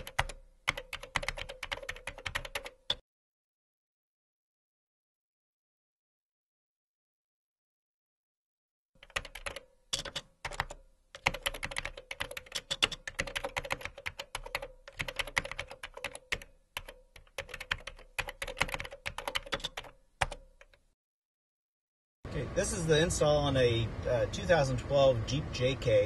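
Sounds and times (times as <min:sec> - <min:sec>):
typing on a keyboard: 0:00.0 - 0:03.0, 0:09.0 - 0:20.8.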